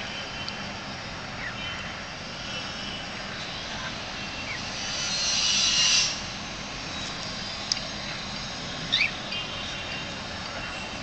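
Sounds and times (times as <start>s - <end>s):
outdoor background rumble: 0.0s - 11.0s
loud hiss: 2.0s - 10.6s
bird chirps: 3.4s - 6.3s, 8.9s - 10.0s.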